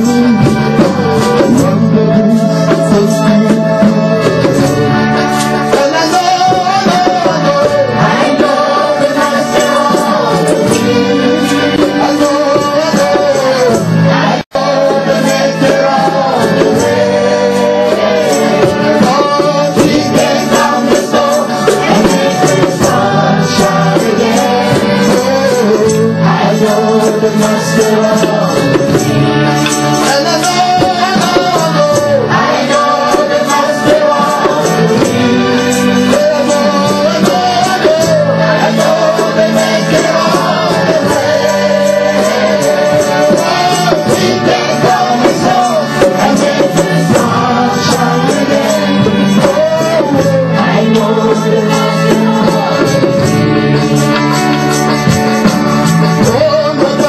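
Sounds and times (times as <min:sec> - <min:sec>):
band with percussion: 0:00.0 - 0:57.0
voices singing worship music: 0:00.0 - 0:57.0.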